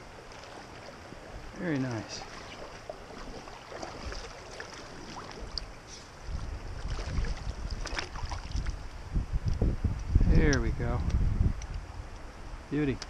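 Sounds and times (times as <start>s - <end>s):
water splashing and dripping: 0.0s - 9.6s
wind buffeting microphone: 0.0s - 13.0s.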